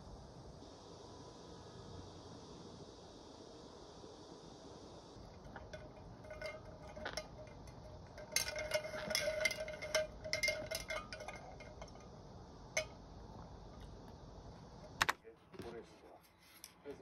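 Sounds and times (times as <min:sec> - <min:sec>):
electric fan hiss: 0:00.0 - 0:15.2
ice cubes clinking in a glass: 0:05.4 - 0:12.0.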